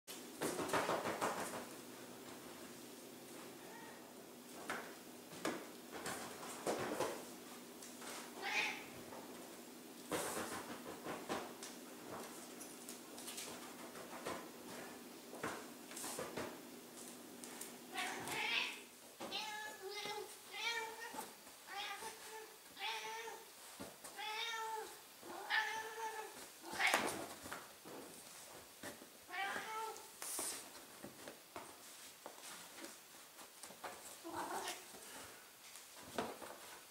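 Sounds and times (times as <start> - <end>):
cat meowing: 3.6 - 4.1, 8.4 - 8.9, 17.9 - 23.4, 24.2 - 27.1, 29.3 - 30.1, 34.2 - 34.9.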